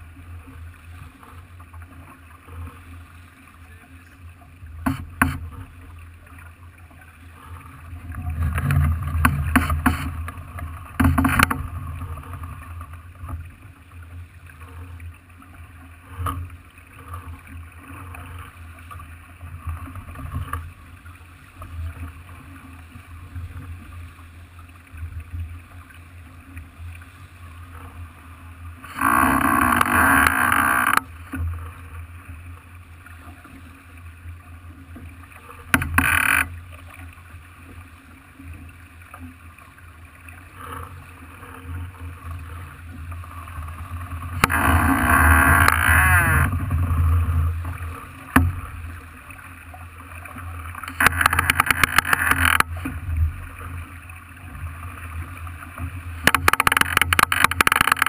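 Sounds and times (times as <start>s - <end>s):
boat rumbling through water: 0.0s - 58.0s.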